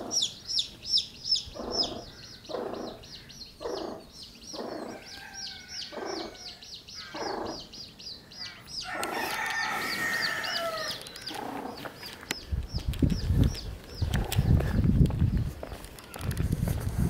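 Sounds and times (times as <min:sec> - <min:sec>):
hen clucking: 0:00.0 - 0:14.6
baby chicks peeping: 0:00.0 - 0:14.8
rooster crowing: 0:04.8 - 0:06.6, 0:08.8 - 0:11.0.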